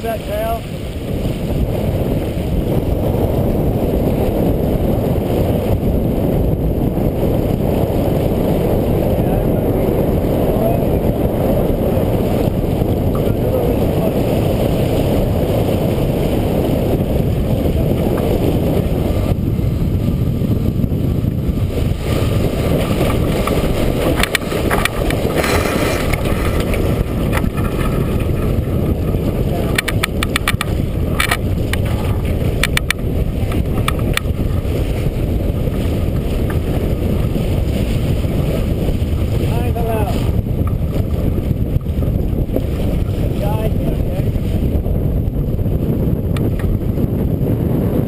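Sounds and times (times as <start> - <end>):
water rushing along hull: 0.0 - 48.0
wind buffeting microphone: 0.0 - 48.0
sharp clicks and knocks: 23.1 - 28.6, 29.7 - 34.4.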